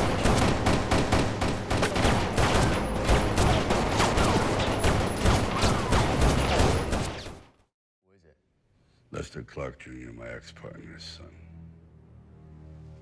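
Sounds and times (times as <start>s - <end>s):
rapid gunshots: 0.0s - 7.5s.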